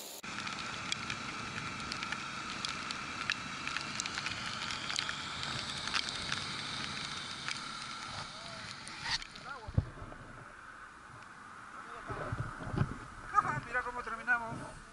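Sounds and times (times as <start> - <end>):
motorcycle on wet road hiss: 0.0 - 9.8
faint steady whine: 0.0 - 14.9
raindrops ticking on camera: 0.2 - 10.1.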